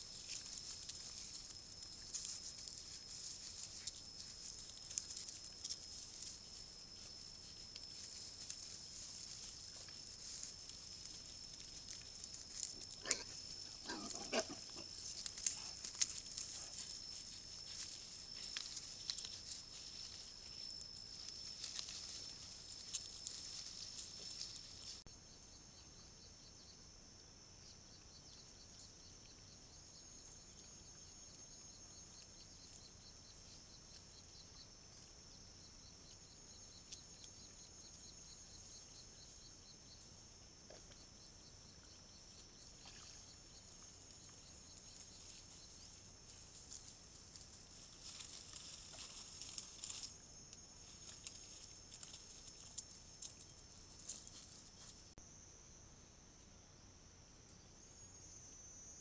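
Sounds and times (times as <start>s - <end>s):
rustles and clicks: 0.0s - 25.0s, 43.8s - 55.2s
boar low call: 13.0s - 15.0s.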